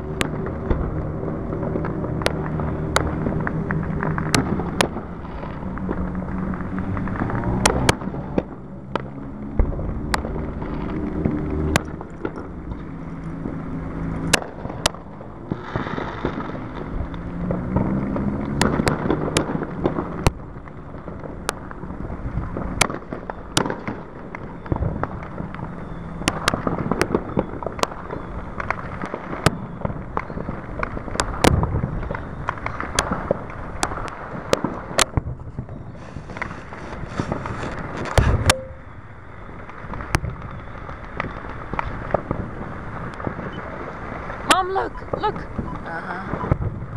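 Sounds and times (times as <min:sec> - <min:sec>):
low firework boom: 0:00.0 - 0:13.5, 0:31.4 - 0:43.8
fireworks bangs and cracks: 0:00.0 - 0:46.9
firework hiss: 0:13.7 - 0:17.2, 0:30.3 - 0:44.8.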